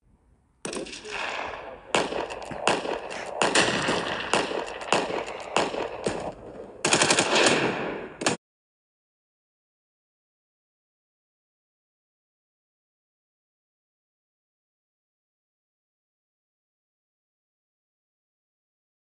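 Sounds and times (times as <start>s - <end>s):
automatic gunfire bursts: 0.7s - 8.4s.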